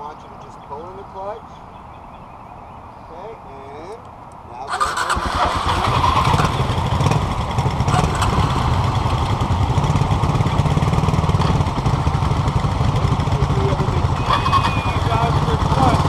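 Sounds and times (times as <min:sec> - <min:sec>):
small motorcycle engines idling: 0:04.7 - 0:16.0.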